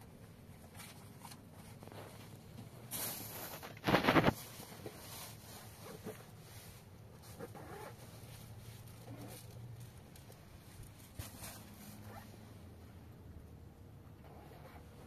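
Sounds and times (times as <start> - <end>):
bags and bedding rustling: 0.2 - 12.6
zipper pulled: 7.3 - 8.0, 11.2 - 12.4, 14.2 - 15.0.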